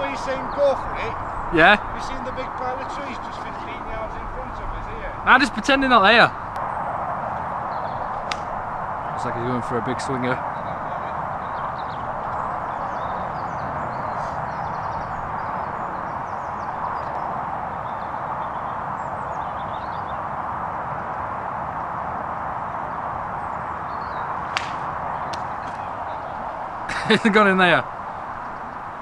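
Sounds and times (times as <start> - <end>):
outdoor background noise: 0.0 - 29.0
golf club striking ball: 8.2 - 8.5, 24.4 - 26.0.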